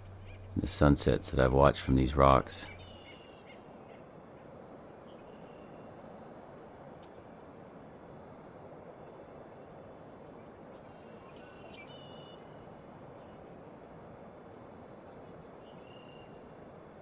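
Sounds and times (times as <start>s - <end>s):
steady rushing hiss: 0.0s - 3.0s, 3.6s - 11.3s.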